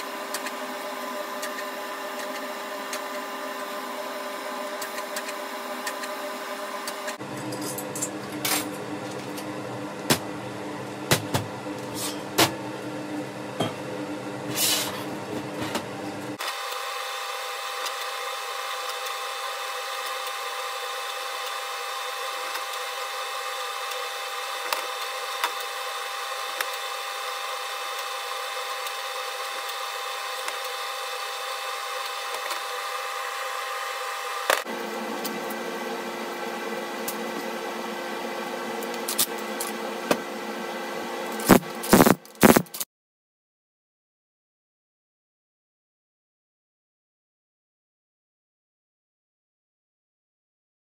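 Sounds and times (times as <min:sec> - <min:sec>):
welding arc buzzing: 0:41.3 - 0:42.9
steady high-pitched hum: 0:41.4 - 0:42.7.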